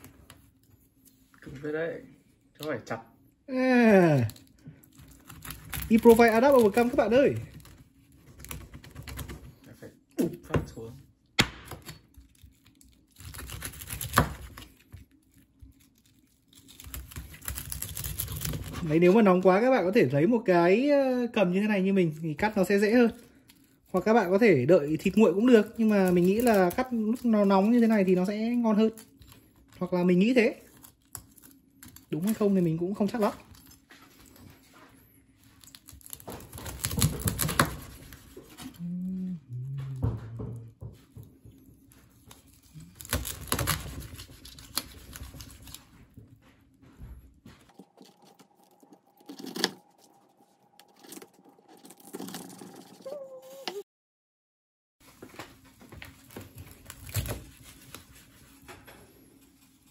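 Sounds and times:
knife crunching crackling skin: 11.7 - 18.9, 42.2 - 45.8, 47.7 - 53.0
knife sawing crunchy pork crackling: 12.4 - 19.4, 22.5 - 33.8, 35.6 - 38.7, 42.2 - 45.9
short low tones: 38.6 - 40.8.

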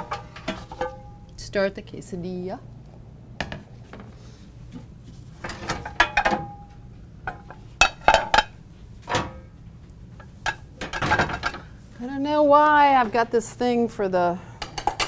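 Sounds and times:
pots and pans clanking: 0.0 - 1.1, 5.4 - 9.4, 10.4 - 11.7.

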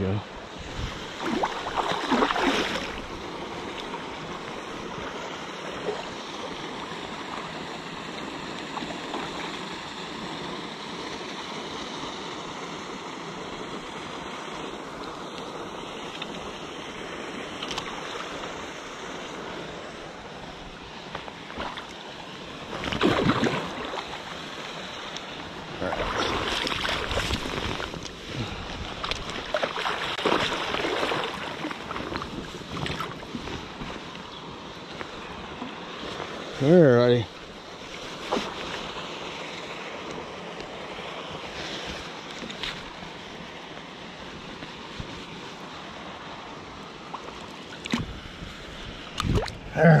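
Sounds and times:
river flowing: 0.0 - 50.0
boots splashing through water: 1.2 - 3.2, 22.7 - 24.2, 25.8 - 28.1, 28.9 - 33.8.

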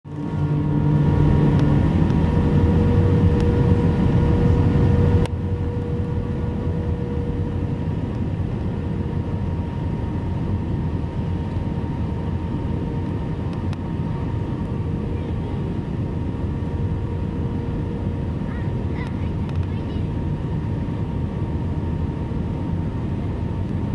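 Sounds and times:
aircraft cabin drone: 0.1 - 23.9
low hum: 0.1 - 23.9
click: 19.0 - 19.7.

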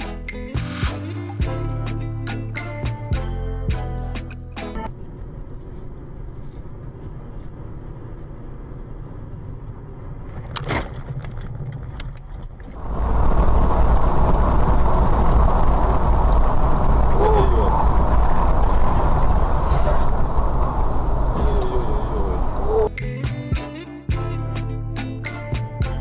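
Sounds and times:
car engine and tyre rumble: 3.2 - 22.9
highway road and wind roar: 4.4 - 22.9.

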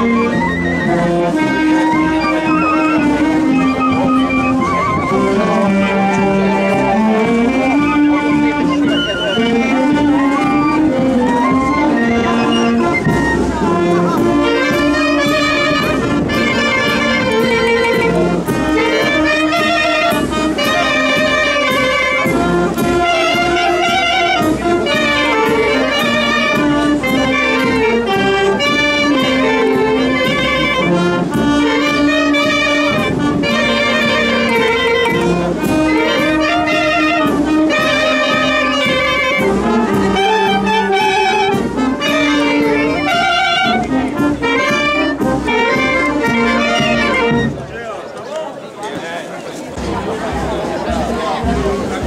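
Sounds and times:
brass band with saxophones: 0.0 - 52.0.

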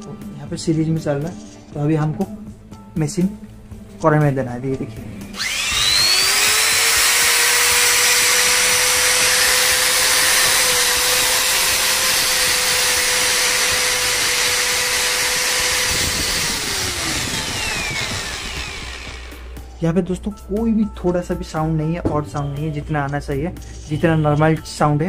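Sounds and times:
angle grinder whining: 5.2 - 19.7.

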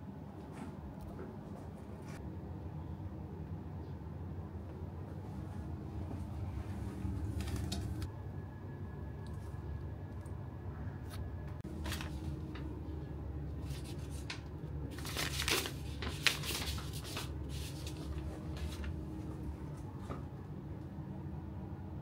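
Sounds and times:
steady low hum: 0.0 - 22.0
rustling of objects handled: 13.6 - 20.2.

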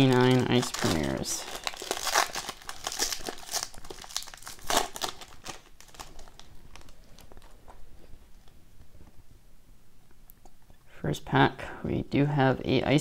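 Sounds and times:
foil wrapper crinkling and tearing: 0.0 - 7.6
cards rustling and ticking: 0.0 - 8.6.

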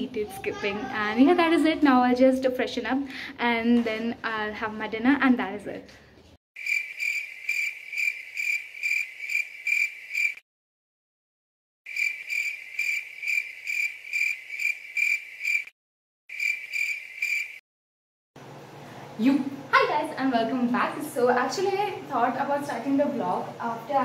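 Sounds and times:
cricket chirping: 6.6 - 10.4, 11.9 - 15.7, 16.3 - 17.6.

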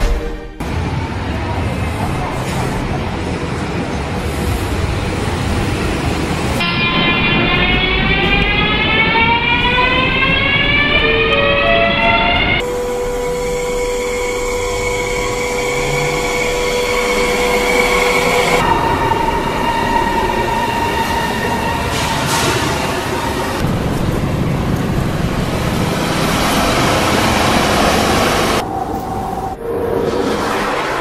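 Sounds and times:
train running with steady hum: 0.0 - 31.0
train traction motors whining: 7.2 - 18.7.

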